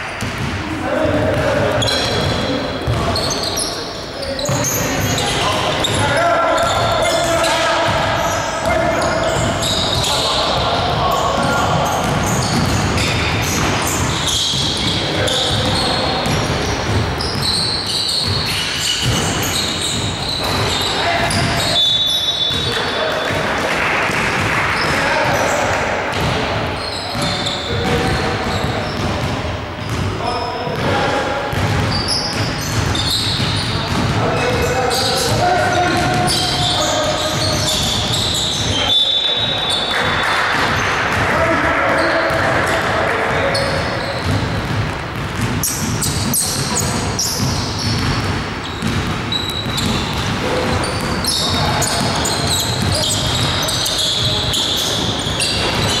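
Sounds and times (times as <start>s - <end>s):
sneakers squeaking: 0.0s - 56.0s
basketball bouncing: 0.2s - 3.4s, 4.4s - 25.4s, 26.1s - 30.9s, 31.5s - 38.8s, 39.7s - 56.0s
players' voices: 0.4s - 56.0s
basketball dribbling on wood floor: 12.0s - 17.5s, 31.5s - 34.2s, 44.2s - 53.6s.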